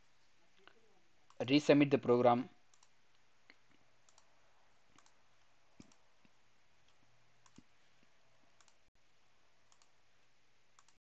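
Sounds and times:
low steady hum: 0.0s - 11.0s
computer mouse clicks: 2.7s - 4.3s, 4.9s - 5.2s, 5.8s - 7.7s, 8.6s - 8.8s, 9.6s - 10.0s, 10.8s - 11.0s.

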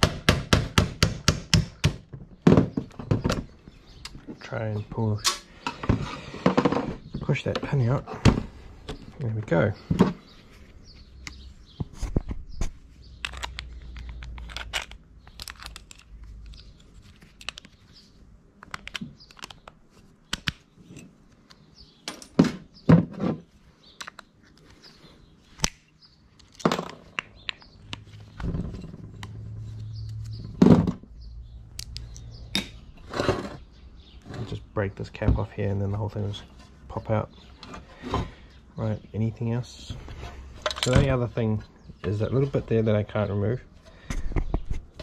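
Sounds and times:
metal parts clicking and clattering: 13.2s - 17.7s, 40.6s - 41.2s.

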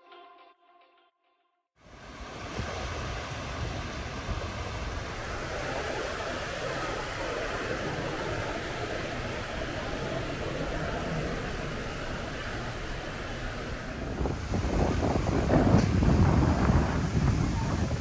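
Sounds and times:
moving vehicle rumble: 2.0s - 18.0s.

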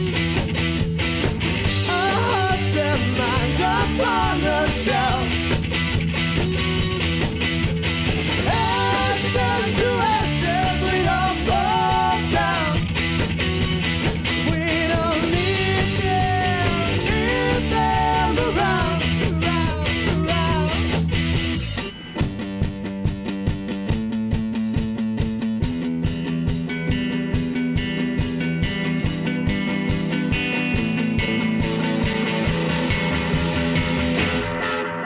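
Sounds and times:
bass guitar: 0.0s - 35.0s
distorted electric guitars: 0.0s - 35.0s
drums: 0.0s - 35.0s
man singing lead vocal: 1.7s - 5.4s, 8.4s - 13.0s, 14.4s - 21.0s.

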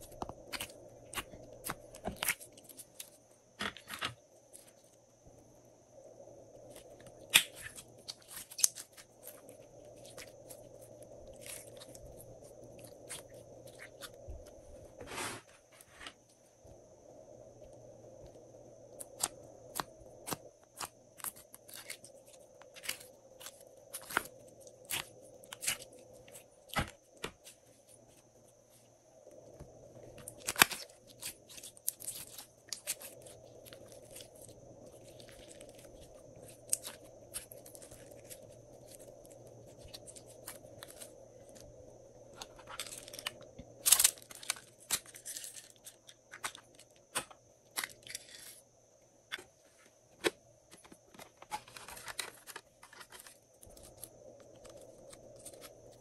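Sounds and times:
plastic containers handled: 49.3s - 54.6s.

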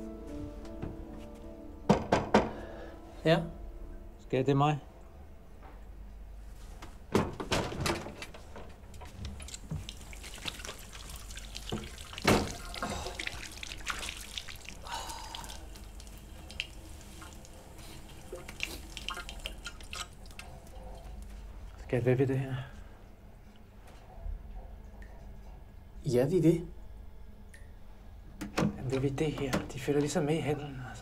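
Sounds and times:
water splashing in a sink: 9.0s - 21.2s.

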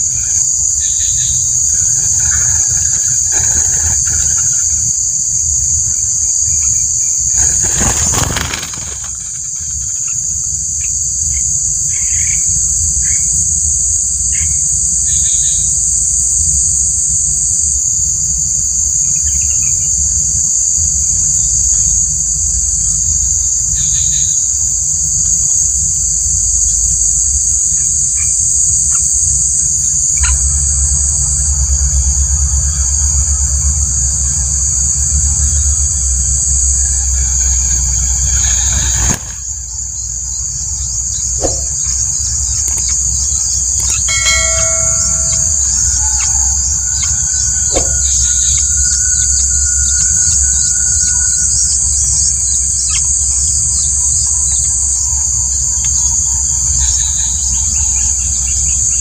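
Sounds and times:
insects droning: 0.0s - 59.0s
low rumble: 30.1s - 51.6s.

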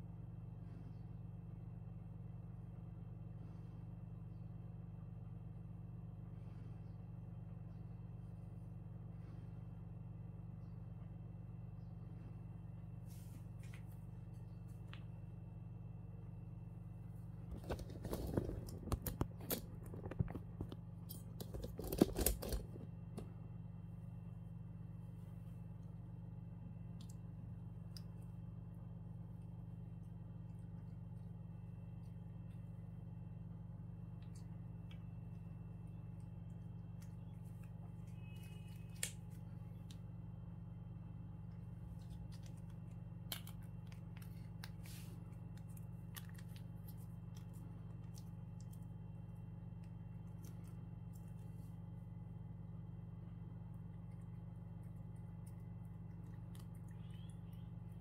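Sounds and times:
steady low hum: 0.0s - 58.0s
plastic pouch rustling: 17.5s - 20.7s.

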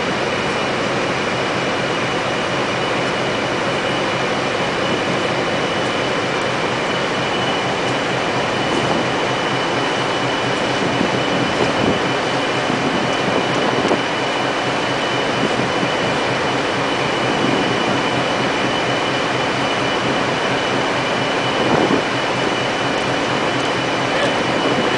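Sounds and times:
constant high whine: 0.0s - 24.9s.

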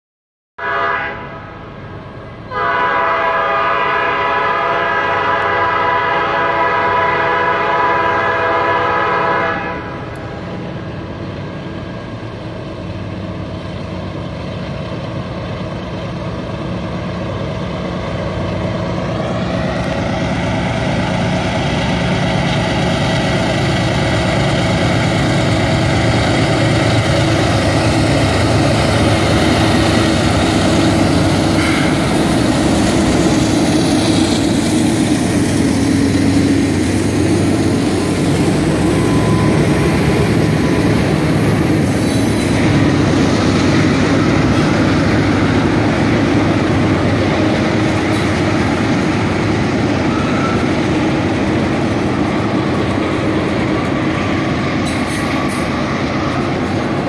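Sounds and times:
locomotive air horn: 0.6s - 1.7s, 2.5s - 10.1s, 30.9s - 32.4s
diesel engines and rolling train rumble: 0.6s - 57.0s.

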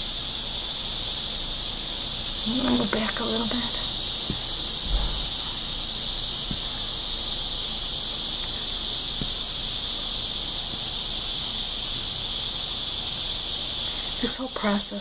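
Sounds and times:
insect chorus drone: 0.0s - 15.0s
faint knocks: 4.2s - 5.6s.

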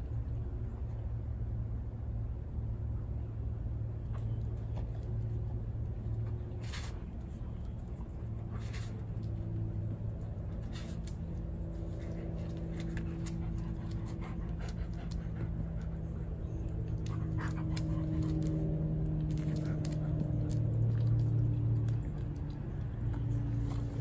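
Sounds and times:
low mechanical hum: 0.0s - 24.0s
dogs panting: 7.8s - 24.0s.

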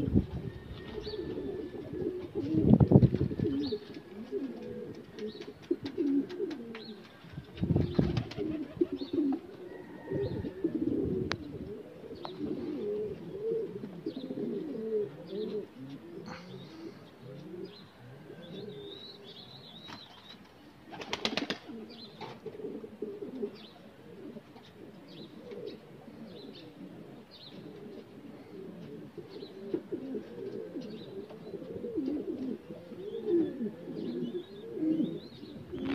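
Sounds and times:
pigeons cooing: 0.0s - 35.9s
small birds chirping: 3.5s - 9.4s, 11.3s - 12.8s, 13.9s - 22.4s, 24.6s - 28.1s, 29.2s - 29.8s.

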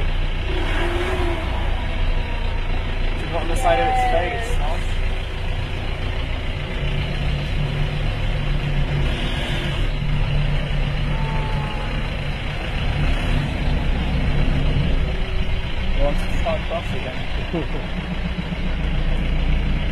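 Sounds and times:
jeep engine drone from inside: 0.0s - 19.9s.

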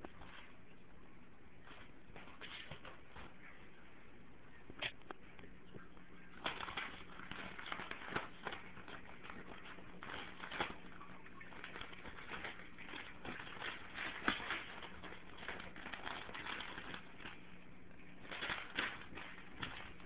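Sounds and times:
paper crumpling and tearing: 6.4s - 17.4s.

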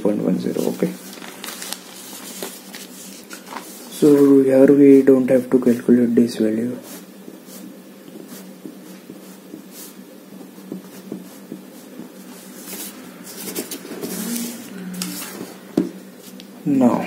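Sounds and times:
steady low hum: 0.0s - 17.0s
pencil scratching on paper: 6.8s - 15.6s.

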